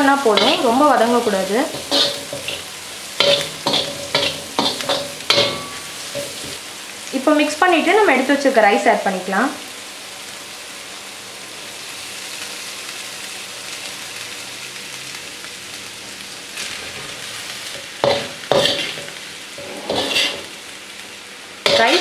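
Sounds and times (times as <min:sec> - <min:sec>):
vegetables sizzling in a wok: 0:00.0 - 0:22.0
metal spatula scraping a wok: 0:00.3 - 0:06.6, 0:16.6 - 0:20.7, 0:21.6 - 0:22.0.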